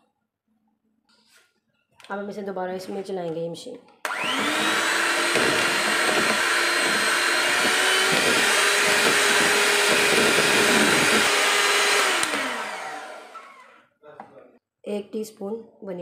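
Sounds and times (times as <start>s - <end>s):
electric hand mixer running: 4.1s - 13.8s.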